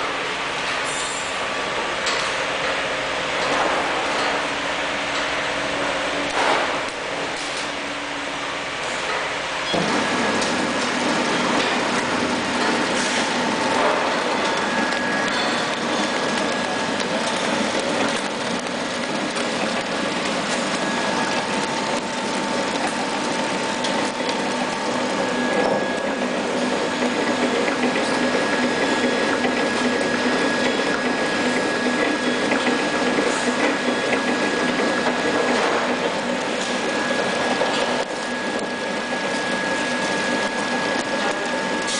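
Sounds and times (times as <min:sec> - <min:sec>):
faint machine whine: 0:00.0 - 0:41.9
packing machine clatter: 0:09.7 - 0:41.9.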